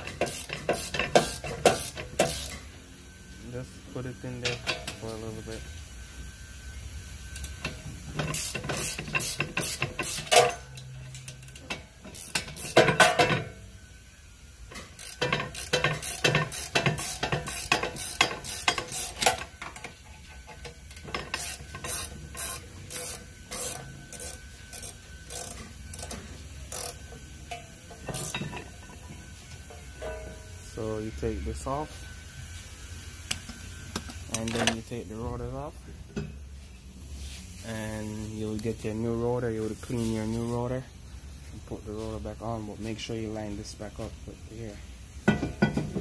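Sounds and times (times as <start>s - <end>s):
ratchet wrench clicking: 0.0s - 2.7s, 7.3s - 13.4s, 14.7s - 28.8s.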